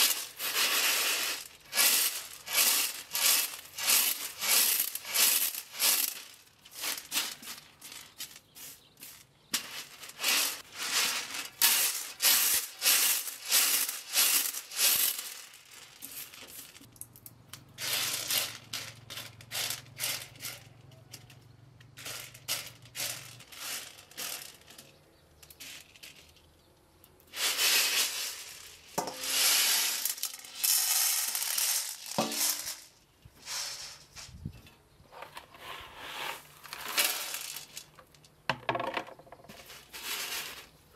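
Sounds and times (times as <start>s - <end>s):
grain pouring off tray: 0.0s - 16.8s, 27.4s - 34.2s, 35.8s - 37.9s, 39.5s - 40.8s
grain rattling on metal tray: 0.0s - 17.1s, 17.7s - 26.6s, 27.2s - 34.3s, 35.2s - 40.9s.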